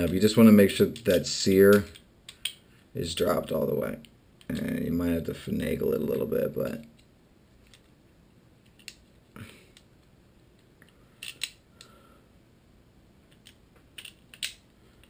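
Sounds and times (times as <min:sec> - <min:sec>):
metal trigger parts clicking: 0:11.2 - 0:11.6.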